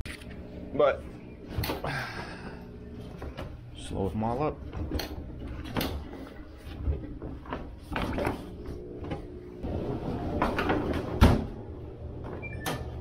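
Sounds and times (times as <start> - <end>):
washing machine door clicks and knocks: 10.4 - 11.6.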